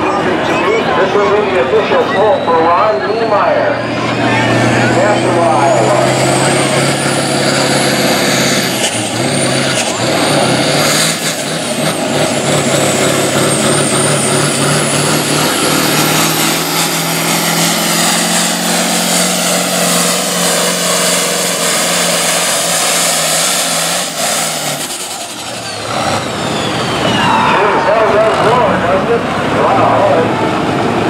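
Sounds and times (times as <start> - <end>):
high engine whine: 0.0 - 31.0
tractor engine under full load: 0.0 - 31.0.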